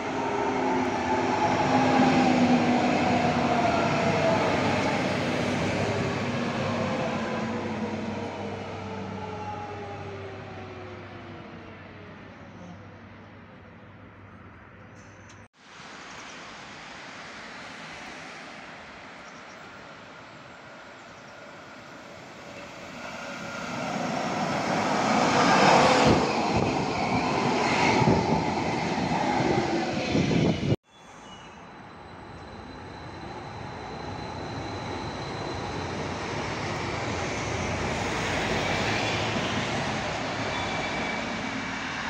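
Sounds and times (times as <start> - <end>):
falling train whine: 0.0 - 12.7, 19.9 - 42.0
light rail train passing: 0.0 - 42.0.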